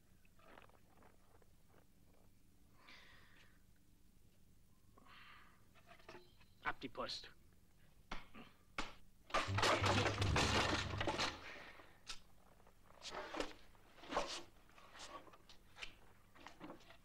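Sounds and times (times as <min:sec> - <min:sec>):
crash of breaking and clattering: 0:09.4 - 0:11.6.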